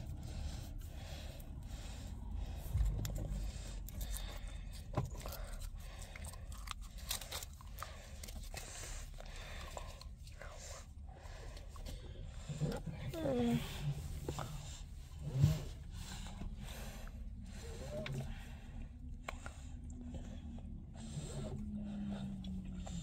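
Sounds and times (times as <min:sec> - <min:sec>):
person chewing food: 0:02.3 - 0:10.4.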